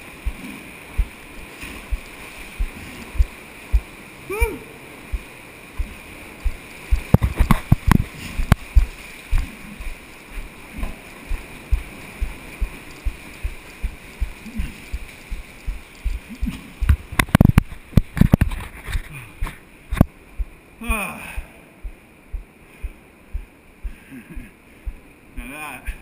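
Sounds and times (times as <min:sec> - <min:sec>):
water thumping against camera: 0:05.2 - 0:20.6.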